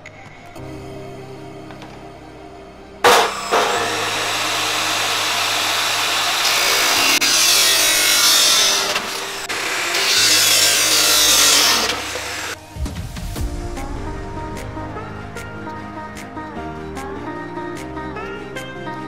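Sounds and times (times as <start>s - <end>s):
chop saw cutting plastic pipe: 3.0s - 12.6s.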